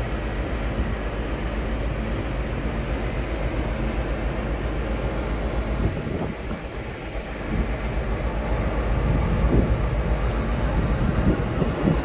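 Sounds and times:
wind buffeting microphone: 0:04.5 - 0:12.0.

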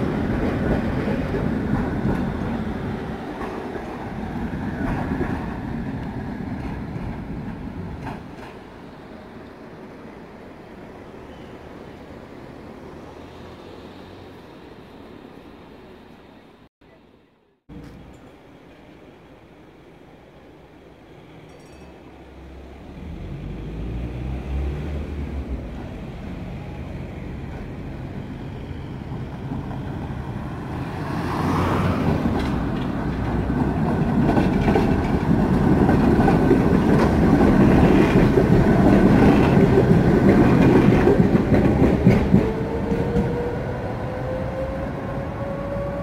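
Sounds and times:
tram wheels rumbling and clacking: 0:00.0 - 0:09.6, 0:21.2 - 0:46.0.

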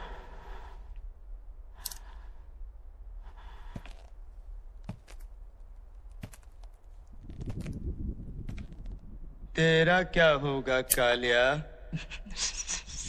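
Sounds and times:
low hum: 0:00.0 - 0:09.6.

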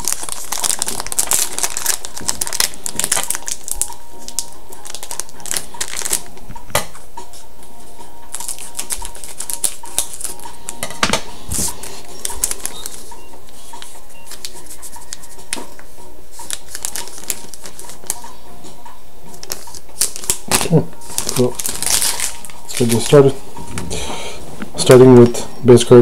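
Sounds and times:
foil wrapper crinkling: 0:00.0 - 0:06.3, 0:08.3 - 0:10.9, 0:11.5 - 0:15.6, 0:16.3 - 0:18.2, 0:19.4 - 0:23.4.

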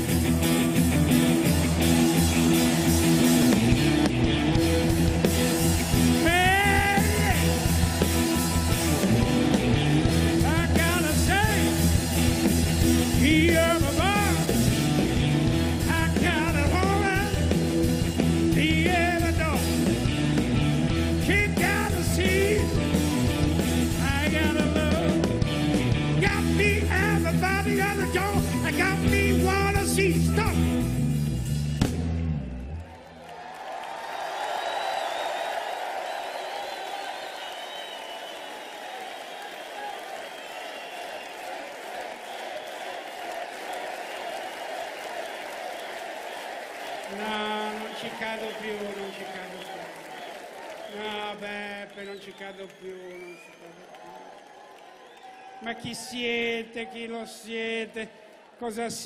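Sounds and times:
rock music: 0:00.0 - 0:32.8
man singing: 0:06.2 - 0:07.4, 0:13.1 - 0:14.5, 0:15.8 - 0:17.4, 0:18.5 - 0:19.6, 0:21.2 - 0:22.9, 0:23.9 - 0:25.3, 0:26.2 - 0:30.6.

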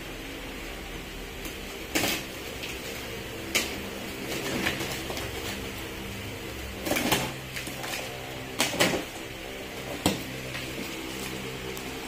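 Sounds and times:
background hum: 0:00.0 - 0:12.0
cardboard flaps rustling: 0:01.5 - 0:05.8.

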